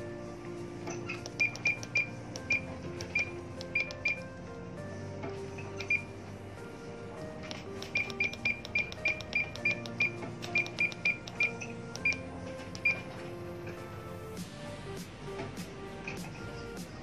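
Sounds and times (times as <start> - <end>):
background music sustained notes: 0.0 - 17.0
button clicks: 1.0 - 4.2, 7.5 - 13.0
short high key beeps: 1.1 - 4.2, 7.9 - 12.2.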